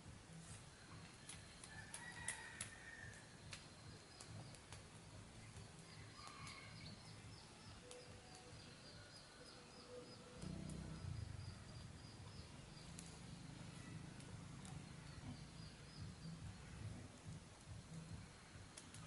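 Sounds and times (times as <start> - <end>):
soft bird calls: 0.3 - 19.0
faint clicks: 1.0 - 6.6, 12.8 - 15.4, 18.8 - 19.0.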